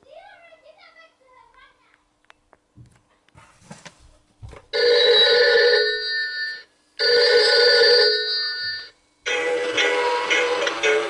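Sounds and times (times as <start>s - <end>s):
telephone ringing: 4.8s - 11.0s.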